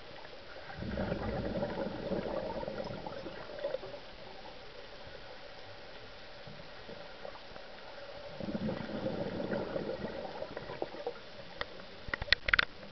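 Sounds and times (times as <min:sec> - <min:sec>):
steady underwater hiss: 0:00.0 - 0:12.9
underwater exhaled bubbles: 0:00.0 - 0:12.9.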